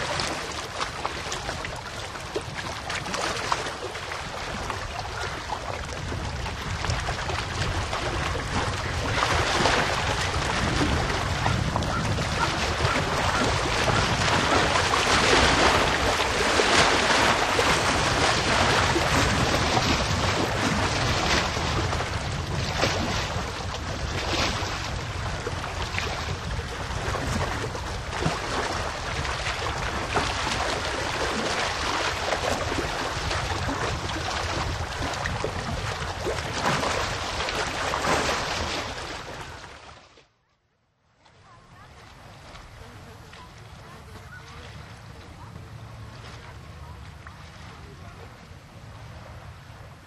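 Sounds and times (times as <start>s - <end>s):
wind rumbling on microphone: 0.0s - 39.9s
waves lapping against shore: 0.0s - 40.3s, 41.2s - 50.0s.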